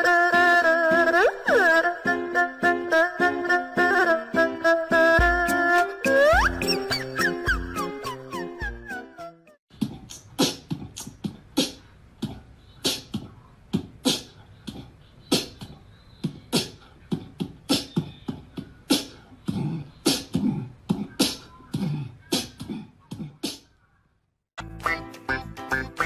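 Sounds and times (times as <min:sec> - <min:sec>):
beatboxing: 0:09.7 - 0:23.7, 0:24.6 - 0:26.0.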